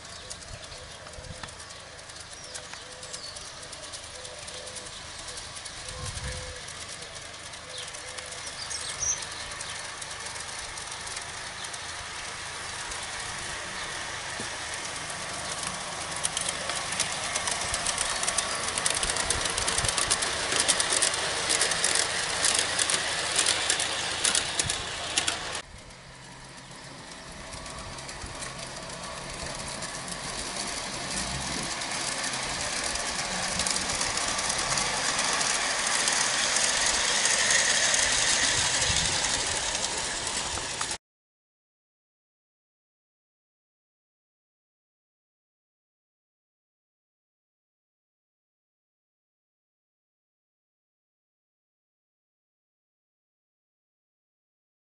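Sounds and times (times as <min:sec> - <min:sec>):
model train wheels clattering: 0:00.0 - 0:41.0
steady running noise: 0:00.0 - 0:41.0.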